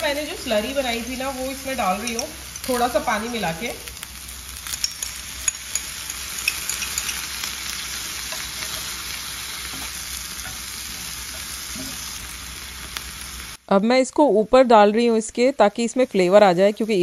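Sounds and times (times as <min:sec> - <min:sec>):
food sizzling in grill pan: 0:00.0 - 0:13.7
chopsticks stirring: 0:01.7 - 0:03.0, 0:04.7 - 0:12.2.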